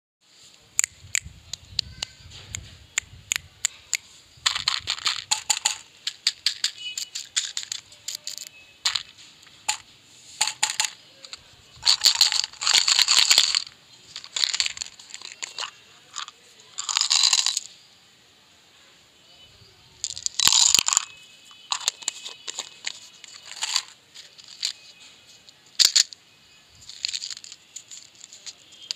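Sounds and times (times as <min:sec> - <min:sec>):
plastic wrappers crinkling: 0:04.4 - 0:09.8, 0:10.4 - 0:17.7, 0:20.1 - 0:26.2, 0:26.8 - 0:28.9.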